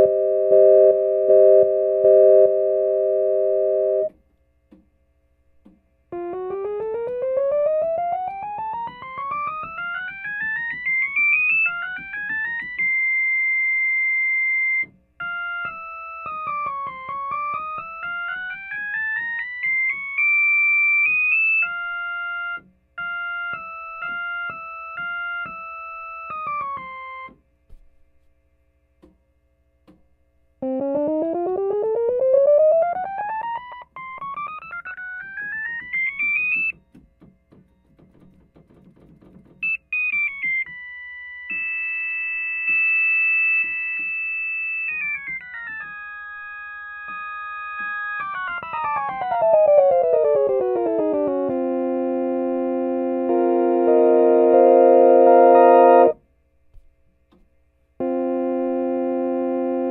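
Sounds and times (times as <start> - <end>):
organ playing flute-like scales: 0.0 - 4.1, 47.3 - 56.2, 58.0 - 59.9.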